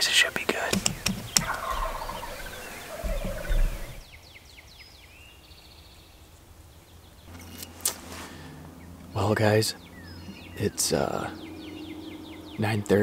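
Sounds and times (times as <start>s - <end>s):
faint songbird chirps: 0.0s - 13.0s
turkey gobbling: 1.3s - 4.0s.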